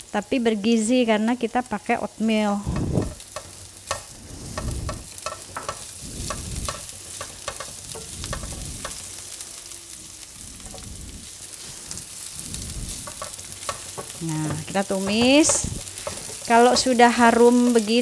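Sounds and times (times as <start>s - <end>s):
garlic and onion sizzling in oil: 0.0s - 18.0s
spatula scraping and tapping pan: 2.6s - 9.4s, 10.6s - 10.9s, 12.8s - 18.0s.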